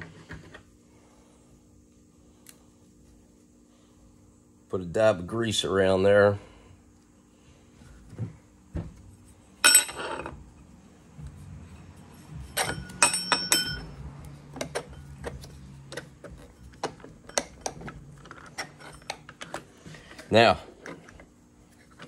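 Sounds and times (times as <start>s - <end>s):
metal parts clinking and knocking: 9.6s - 10.3s, 12.5s - 14.0s.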